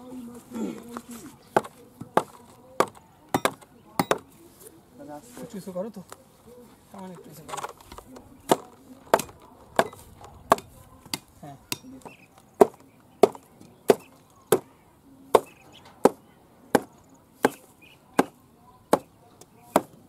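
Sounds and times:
mallet pounding wooden pegs: 1.6s - 4.2s.

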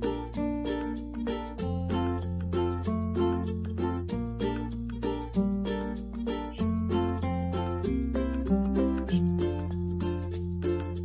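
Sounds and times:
plucked ukulele tune: 0.0s - 11.0s
steady bass: 0.0s - 11.0s.

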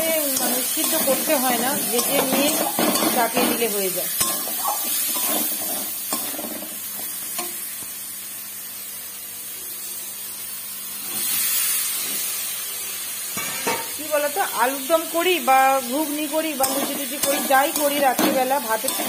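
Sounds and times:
peas sizzling in hot oil: 0.0s - 19.0s
spatula scraping a wok: 0.2s - 3.6s, 4.2s - 6.7s, 16.4s - 19.0s.

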